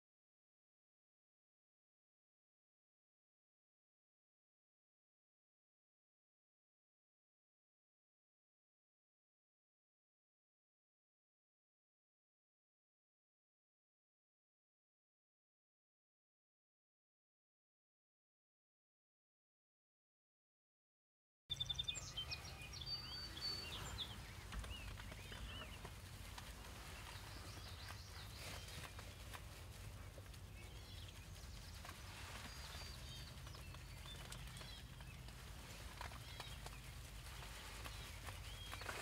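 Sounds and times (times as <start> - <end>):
small birds chirping: 21.5 - 39.0.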